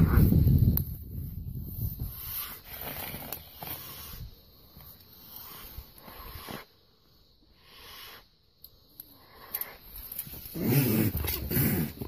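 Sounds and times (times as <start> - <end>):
mountain lion hissing: 2.0 - 8.5, 9.1 - 12.0.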